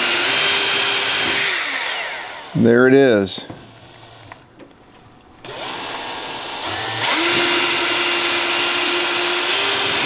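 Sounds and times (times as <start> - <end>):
cordless drill drilling: 0.0 - 2.6, 3.7 - 4.4, 5.4 - 10.0.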